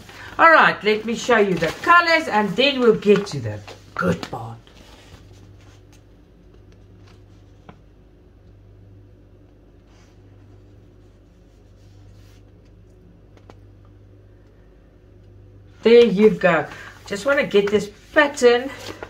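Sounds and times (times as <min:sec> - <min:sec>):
paper rustling and crinkling: 0:00.0 - 0:07.9, 0:16.2 - 0:19.0
steady low hum: 0:00.0 - 0:19.0.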